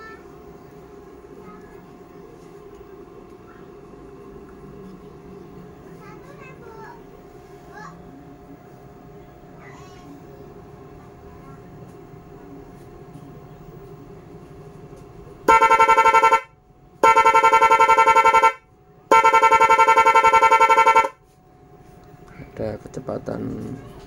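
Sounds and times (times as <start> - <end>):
stuttering electric horn blasts: 15.5 - 21.3.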